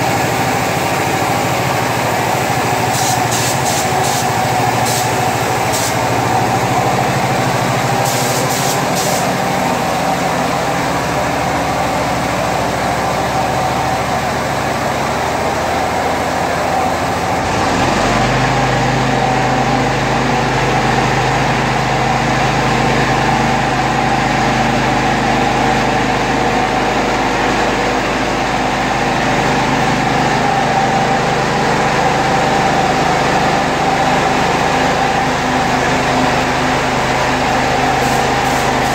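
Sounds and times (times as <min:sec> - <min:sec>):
machine hum: 0:00.0 - 0:38.9
spray gun hissing: 0:02.4 - 0:06.6, 0:07.5 - 0:09.6, 0:37.9 - 0:38.9.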